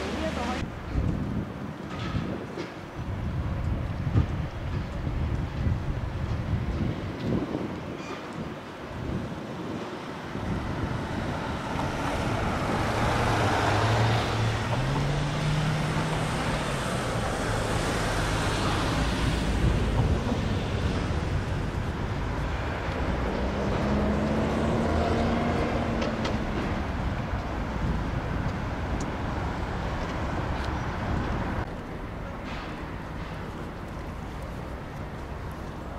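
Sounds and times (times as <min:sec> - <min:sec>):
tyre and road noise: 0:00.0 - 0:35.9
vehicle engine accelerating: 0:11.4 - 0:20.6, 0:22.4 - 0:27.0.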